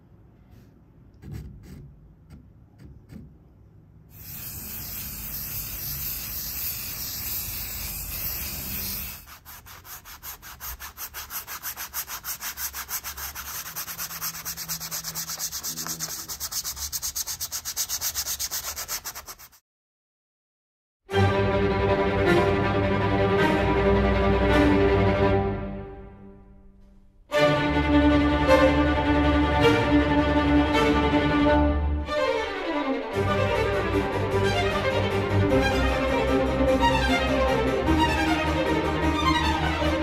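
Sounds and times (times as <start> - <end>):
charcoal scratching on canvas: 1.2 - 3.3, 4.2 - 19.6
brush scrubbing paint on canvas: 4.2 - 19.6.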